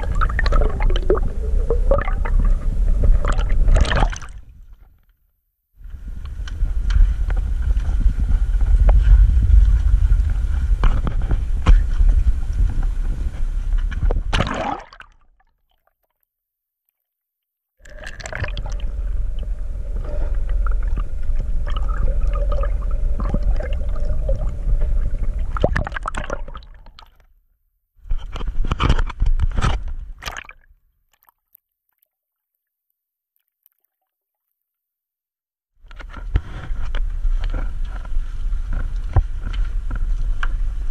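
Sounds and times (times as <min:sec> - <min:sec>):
faint steady hum: 0:00.0 - 0:04.9, 0:05.8 - 0:15.0, 0:17.8 - 0:27.0
muffled underwater rushing water: 0:00.0 - 0:04.9, 0:05.8 - 0:15.2, 0:17.8 - 0:27.1, 0:36.0 - 0:40.9.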